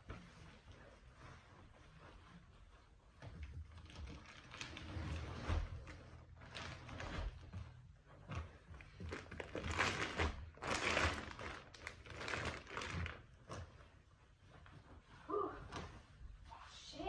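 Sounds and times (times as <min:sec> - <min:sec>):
packaging crinkling and rustling: 0:03.4 - 0:07.8, 0:08.4 - 0:13.9.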